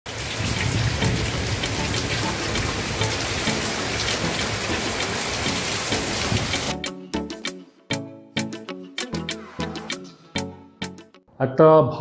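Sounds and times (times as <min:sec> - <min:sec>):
heavy rain pouring on street: 0:00.1 - 0:06.7
music: 0:00.6 - 0:12.0.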